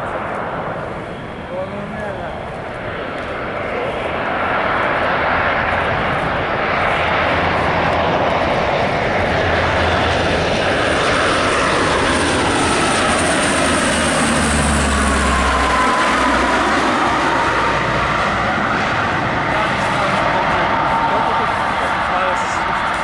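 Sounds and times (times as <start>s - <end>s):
low propeller hum: 0.0s - 23.0s
turboprop aircraft flying overhead: 0.0s - 23.0s
engine whine dropping in pitch: 5.9s - 23.0s.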